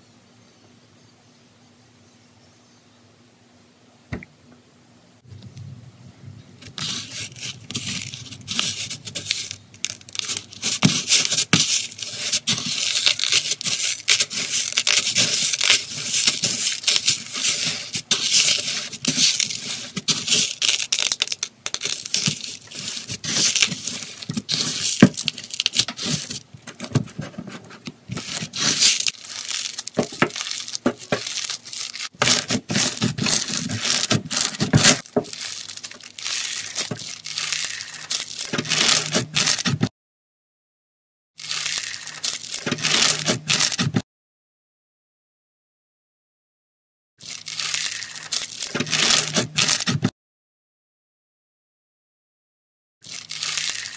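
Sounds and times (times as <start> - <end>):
beads crunching in slime: 6.6 - 27.3, 28.0 - 39.7, 41.4 - 43.8, 47.2 - 50.0, 53.0 - 53.9.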